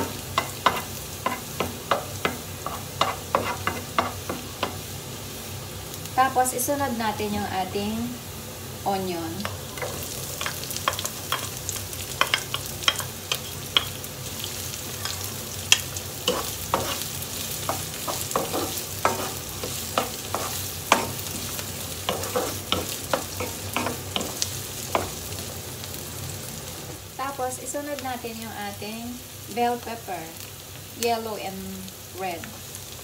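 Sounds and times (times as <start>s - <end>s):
onion and garlic sizzling in oil: 0.0s - 33.0s
wooden spatula scraping pan: 22.1s - 24.4s.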